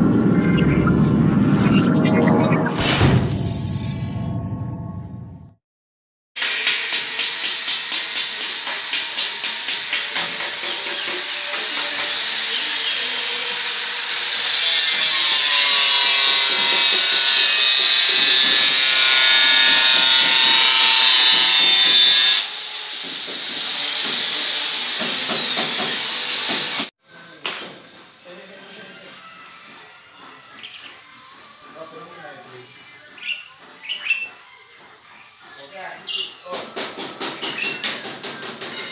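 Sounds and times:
angle grinder whining: 6.4 - 26.9.

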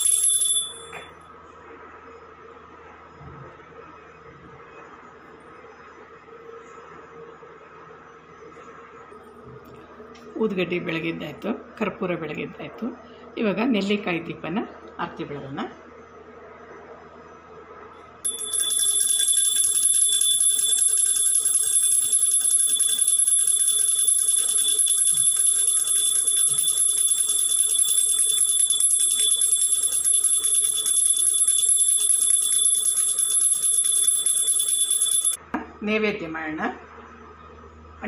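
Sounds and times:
bell ringing rapidly: 0.0 - 1.0, 18.3 - 35.4.

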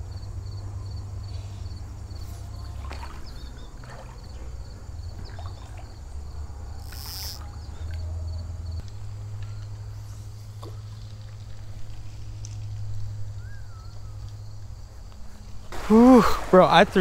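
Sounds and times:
creek water rumbling: 2.4 - 8.0, 15.7 - 17.0
small water splashes: 2.6 - 6.3, 15.7 - 17.0
short hiss: 15.7 - 16.8.

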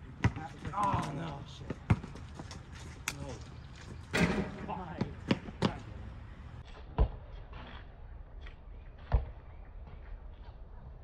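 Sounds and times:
basketball bouncing on asphalt: 0.1 - 2.5, 4.9 - 5.8, 9.0 - 9.4.

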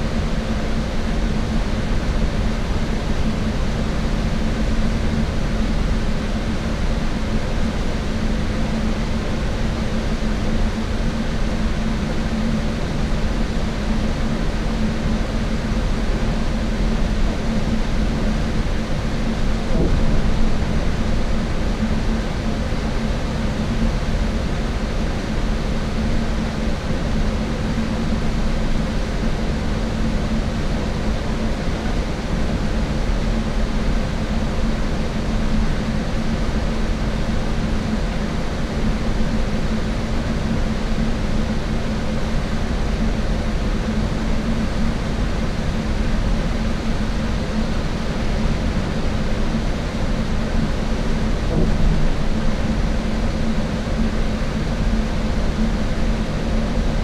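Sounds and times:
bus engine and road rumble: 16.1 - 24.8, 48.2 - 55.8.

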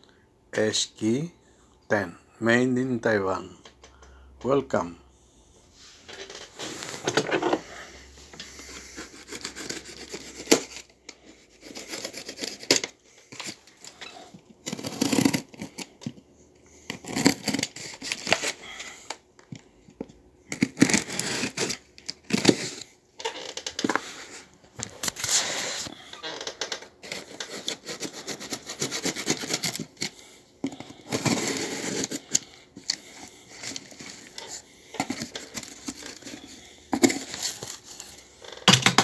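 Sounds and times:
knife slitting packing tape: 9.0 - 10.8, 11.6 - 13.4, 14.6 - 15.9, 16.9 - 18.6, 20.5 - 22.8, 27.0 - 30.2, 31.0 - 33.0.

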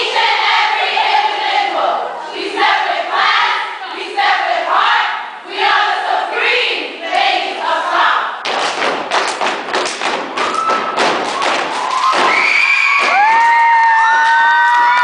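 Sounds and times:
cheer squad chanting: 0.0 - 8.4
loud stomps and claps: 8.4 - 15.0
crowd screaming and cheering: 10.3 - 15.0.

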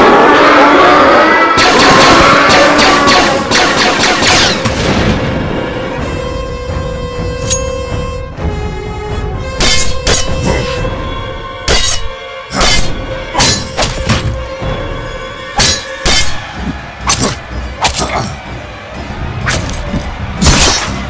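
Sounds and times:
background music with held tones: 4.7 - 21.0.

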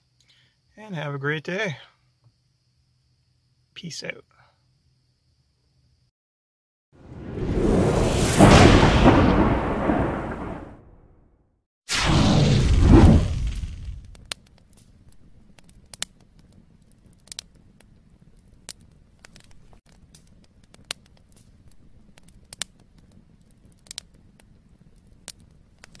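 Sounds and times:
whoosh: 7.0 - 10.9, 11.9 - 14.2
sharp crackles: 7.0 - 11.0, 11.9 - 26.0.

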